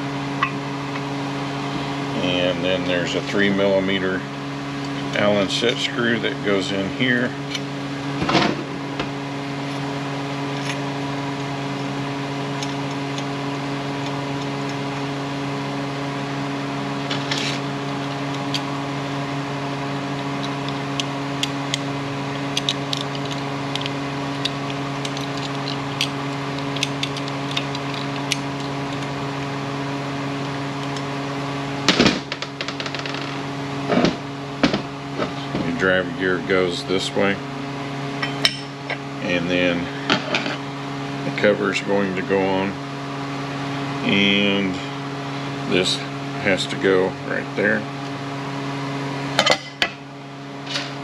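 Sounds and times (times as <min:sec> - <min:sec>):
machine hum: 0:00.0 - 0:51.0
small metal parts clinking: 0:22.6 - 0:29.1.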